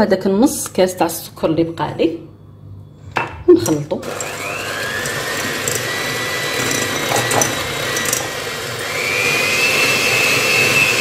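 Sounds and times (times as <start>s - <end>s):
electric hand mixer whining: 4.0s - 11.0s.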